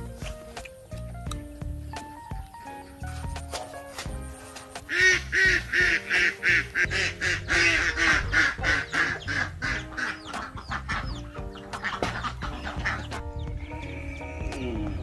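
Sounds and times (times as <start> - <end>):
background music: 0.0 - 15.0
ducks quacking: 4.1 - 15.0.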